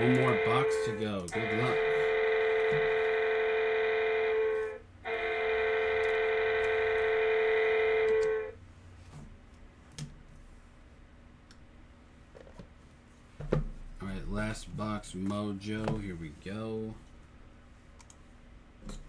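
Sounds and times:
electronic buzzer high tones: 0.0 - 8.6.

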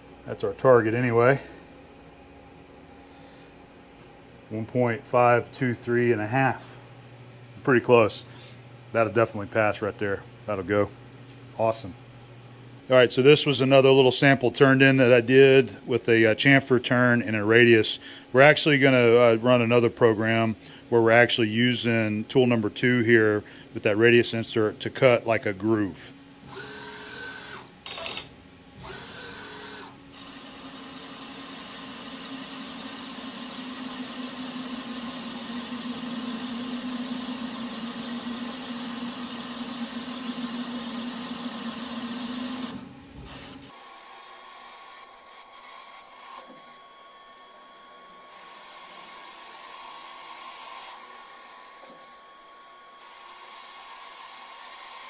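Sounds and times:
uneven machine hum: 0.0 - 55.0
short machine whirs: 26.4 - 55.0
lathe spindle whining: 28.9 - 43.8.

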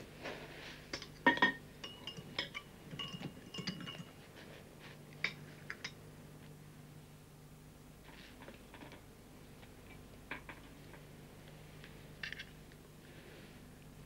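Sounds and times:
faint low hum: 0.0 - 14.0
knife clinking on crockery: 1.0 - 4.1.

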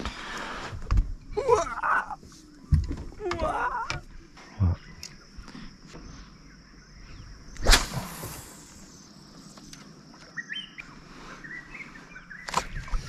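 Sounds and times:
fishing rod swishing through air: 7.6 - 8.8.

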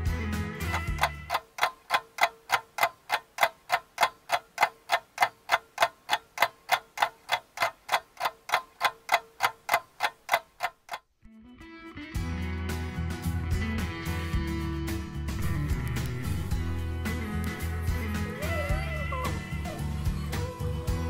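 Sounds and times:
clock ticking: 0.6 - 11.2.

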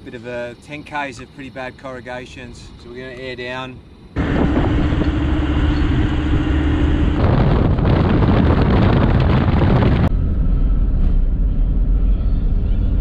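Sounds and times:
steady hum: 0.0 - 13.0
tyre and road noise: 4.2 - 13.0
wind buffeting microphone: 4.2 - 13.0.

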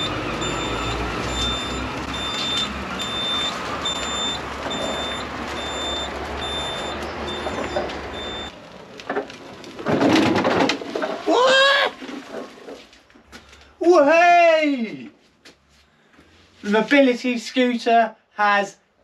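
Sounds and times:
mobility scooter warning beeps: 0.0 - 8.6
scooter rumbling on paving: 0.0 - 13.0.

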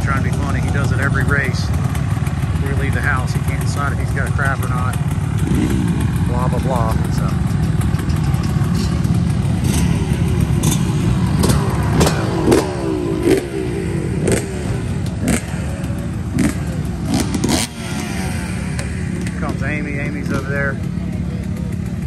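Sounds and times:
dirt bike engines rumbling: 0.0 - 22.0
motorbike revving: 0.0 - 22.0.

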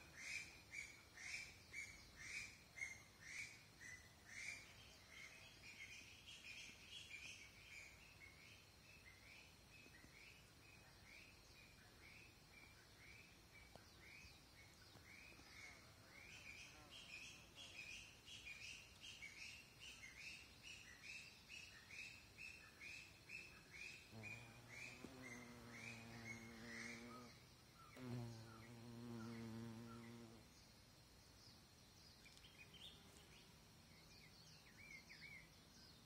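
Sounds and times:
fly buzzing: 24.1 - 30.5.

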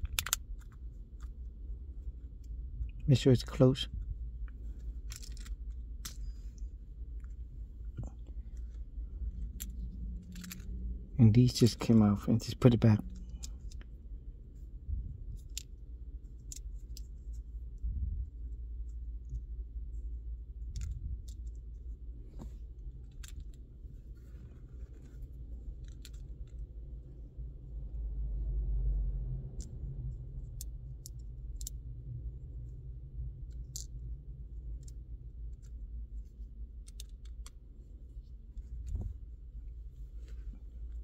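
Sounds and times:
steady low rumble: 0.0 - 41.0.

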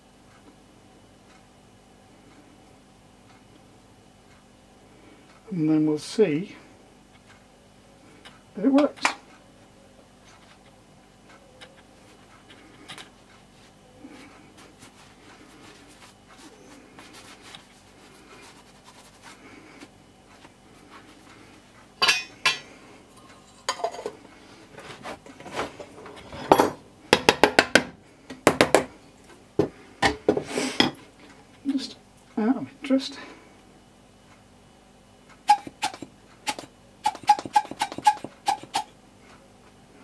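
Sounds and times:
small handling sounds: 10.2 - 21.9.

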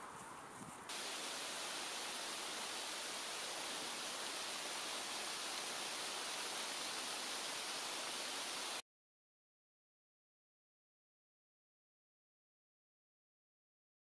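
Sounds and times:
steady hiss: 0.9 - 8.8.

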